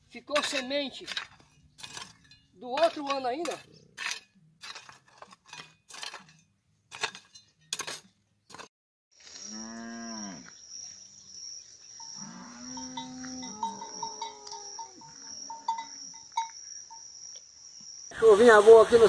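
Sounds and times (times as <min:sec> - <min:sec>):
hoe chopping into stony soil: 0:00.3 - 0:08.7
high insect buzz: 0:09.2 - 0:18.4
cattle mooing: 0:12.2 - 0:15.3.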